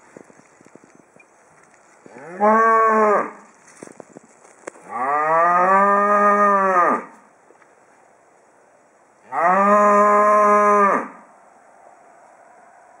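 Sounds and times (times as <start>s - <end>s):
cow mooing: 9.3s - 11.2s.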